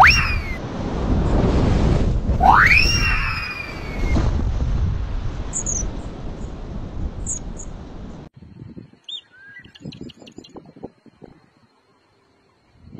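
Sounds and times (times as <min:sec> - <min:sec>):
wind blowing on microphone: 0:00.0 - 0:11.7
bird chirps: 0:08.7 - 0:10.6
bird whistles and trill: 0:09.0 - 0:10.6.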